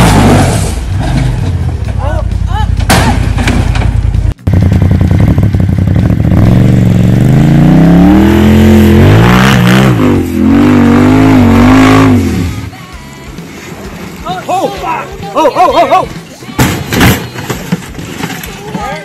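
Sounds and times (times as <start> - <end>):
buggy engine revving: 0.0 - 14.4.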